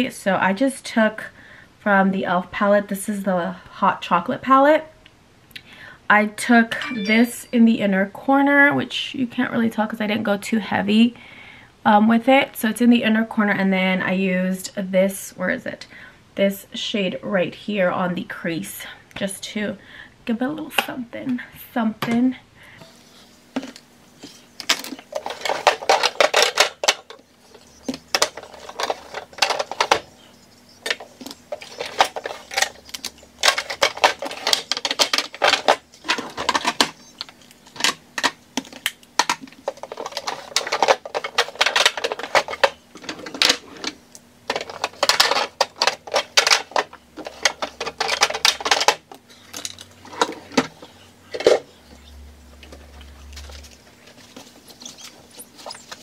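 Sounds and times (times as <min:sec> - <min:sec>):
plastic makeup cases clattering: 0:24.6 - 0:51.7.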